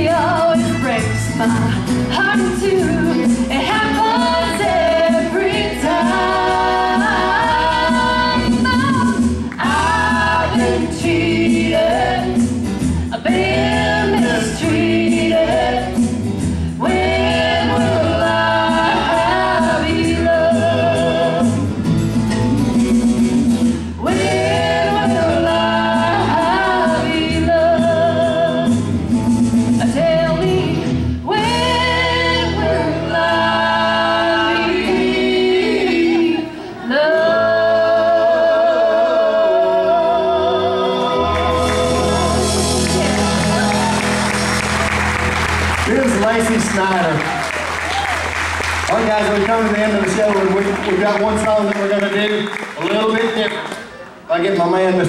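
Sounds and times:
woman singing into a microphone: 0:00.0 - 0:12.3, 0:24.0 - 0:28.9, 0:29.8 - 0:41.0
live band playing: 0:00.0 - 0:37.8, 0:39.3 - 0:54.3.

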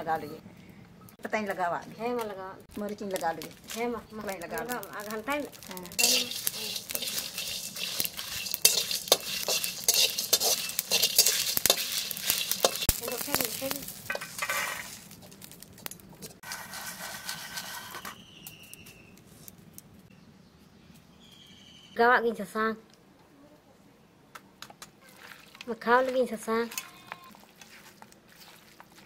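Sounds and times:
light sizzle: 0:01.3 - 0:20.1, 0:25.2 - 0:29.0
spices rattling against a pan: 0:02.7 - 0:18.0
metal spatula scraping a pan: 0:05.6 - 0:15.6, 0:16.2 - 0:18.2.

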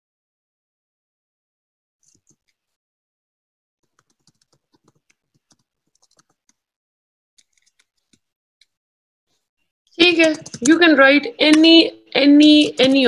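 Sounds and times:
faint clicking and tapping: 0:03.8 - 0:06.6, 0:09.9 - 0:11.7.

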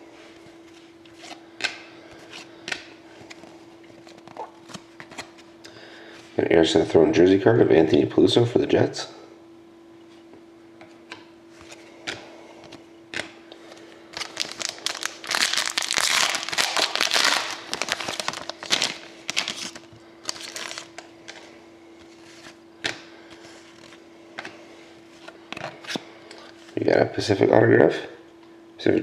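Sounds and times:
plastic wrapper crinkling: 0:14.1 - 0:21.1.

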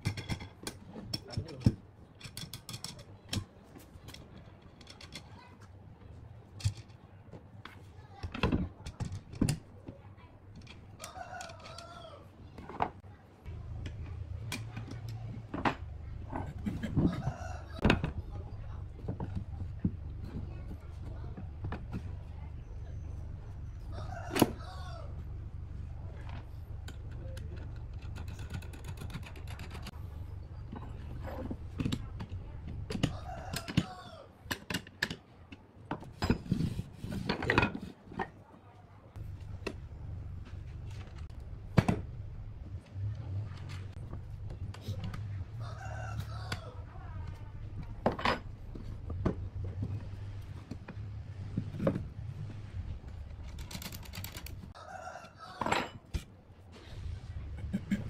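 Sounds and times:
rooster crowing: 0:17.1 - 0:17.9, 0:23.9 - 0:25.2, 0:33.1 - 0:34.3, 0:45.6 - 0:46.9, 0:54.8 - 0:56.0.

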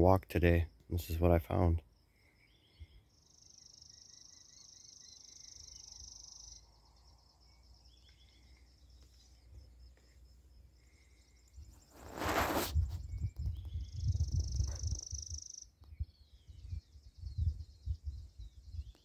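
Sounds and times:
high insect trill: 0:00.6 - 0:15.8
faint bird chirps: 0:00.6 - 0:19.0.

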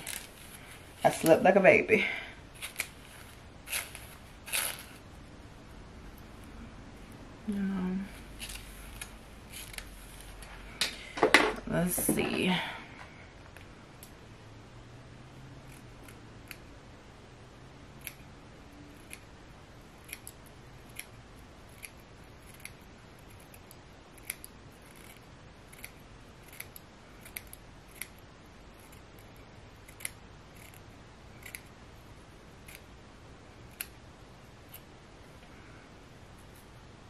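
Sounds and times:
scissors snipping: 0:18.0 - 0:18.2, 0:20.0 - 0:28.2, 0:28.8 - 0:31.7, 0:33.7 - 0:34.0.

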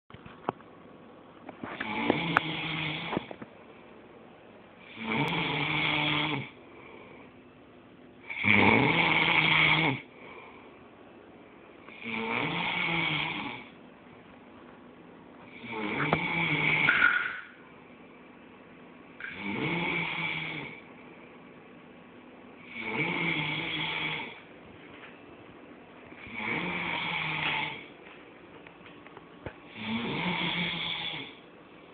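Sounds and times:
man snoring: 0:01.8 - 0:03.3, 0:04.8 - 0:06.6, 0:08.2 - 0:10.1, 0:11.9 - 0:13.8, 0:15.5 - 0:16.9, 0:19.2 - 0:20.8, 0:22.6 - 0:24.4, 0:26.2 - 0:27.9, 0:29.7 - 0:31.4.

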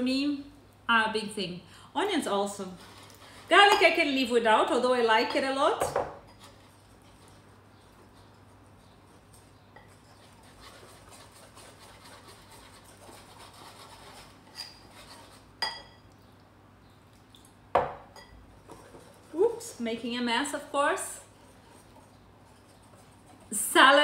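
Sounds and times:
whisk stirring batter in bowl: 0:06.3 - 0:15.7, 0:18.5 - 0:24.0.

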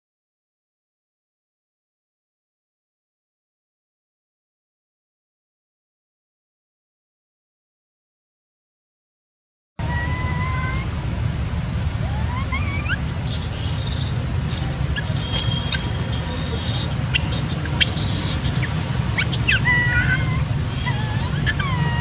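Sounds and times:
monkey screaming: 0:12.1 - 0:22.0.

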